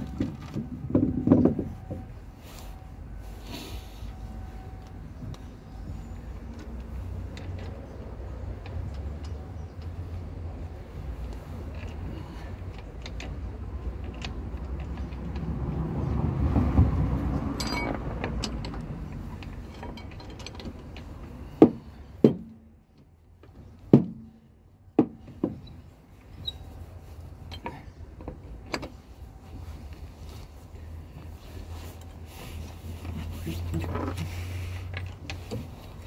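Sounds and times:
metallic clinks of wheel bolts: 17.6 - 21.3.

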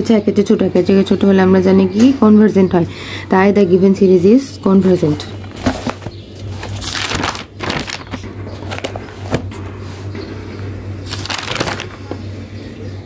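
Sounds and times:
steady low hum: 0.0 - 13.0
paper pages rustling: 4.8 - 10.2, 11.0 - 12.2.

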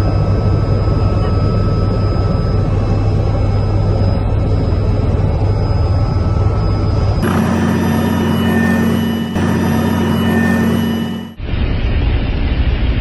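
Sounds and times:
helicopter engine and rotor drone: 0.0 - 12.9
high turbine whine: 0.0 - 13.0.

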